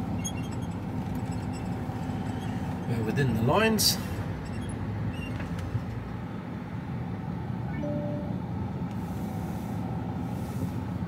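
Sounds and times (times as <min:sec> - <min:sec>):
diesel truck engine running: 0:00.0 - 0:11.0
short beep: 0:07.7 - 0:08.4.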